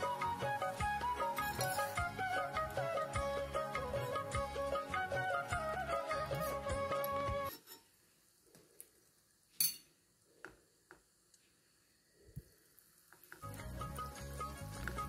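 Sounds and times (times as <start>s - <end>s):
background music: 0.0s - 7.5s, 13.4s - 15.0s
oil sizzling in wok: 0.0s - 15.0s
utensils clinking on pan: 1.4s - 2.0s, 6.4s - 7.9s, 9.6s - 10.0s.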